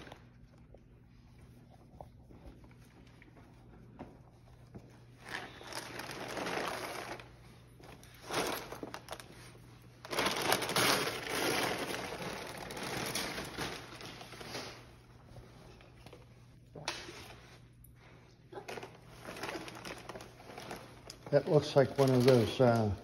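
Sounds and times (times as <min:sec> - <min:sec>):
wrapping paper crinkling: 0:00.0 - 0:00.6, 0:05.2 - 0:15.2, 0:18.6 - 0:23.0.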